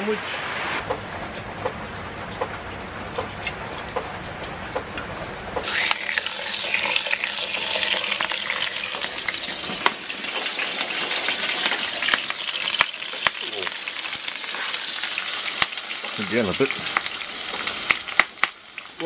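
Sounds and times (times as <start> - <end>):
oil popping and crackling: 5.6 - 19.0
steak sizzling in a frying pan: 5.6 - 19.0.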